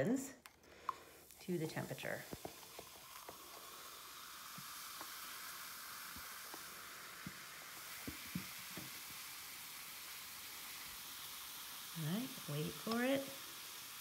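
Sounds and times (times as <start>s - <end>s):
fizzing bubbles hissing: 0.0s - 14.0s
faint pops and clicks: 0.4s - 1.1s.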